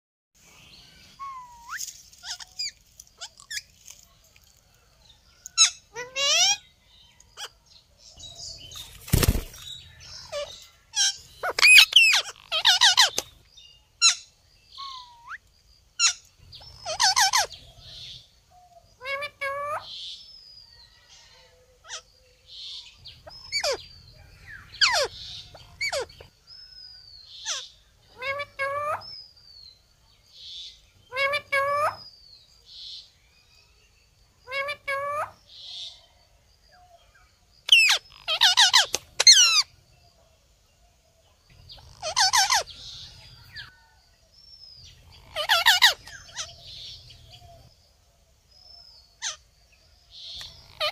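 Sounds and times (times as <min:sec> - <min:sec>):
sharp bird chirps: 0:00.4 - 0:03.8, 0:05.2 - 0:21.3, 0:21.9 - 0:40.2, 0:41.3 - 0:50.9
parakeets squawking and warbling: 0:01.2 - 0:03.7, 0:05.5 - 0:06.8, 0:08.6 - 0:13.4, 0:14.0 - 0:15.4, 0:16.0 - 0:18.2, 0:19.0 - 0:20.1, 0:21.9 - 0:26.4, 0:27.3 - 0:29.2, 0:31.0 - 0:32.1, 0:34.5 - 0:35.4, 0:37.7 - 0:39.7, 0:41.7 - 0:43.9, 0:44.8 - 0:47.7, 0:49.2 - 0:49.5, 0:50.2 - 0:50.9
parakeet squawks: 0:10.2 - 0:13.2, 0:27.4 - 0:29.0, 0:37.7 - 0:39.6, 0:41.8 - 0:42.7, 0:45.2 - 0:46.5, 0:49.2 - 0:49.4.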